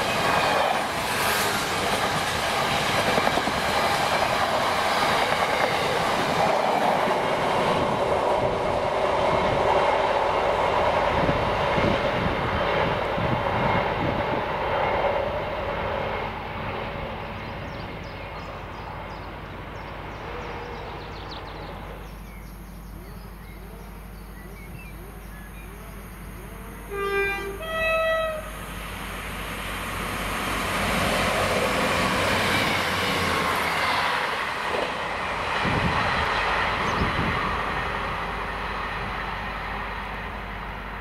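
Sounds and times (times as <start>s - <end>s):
diesel train engines and wheels: 0.0s - 41.0s
freight train rumbling: 0.0s - 41.0s
two-tone train horn: 26.8s - 28.6s.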